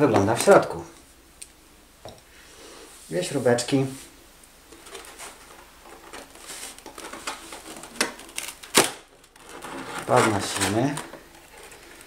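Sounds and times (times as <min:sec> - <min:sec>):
scratchy rustles of foam: 0:02.8 - 0:04.2, 0:09.4 - 0:12.0.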